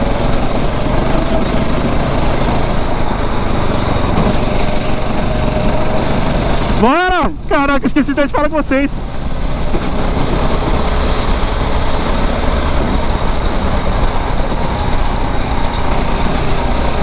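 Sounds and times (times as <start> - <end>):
kart engine running: 0.0 - 17.0.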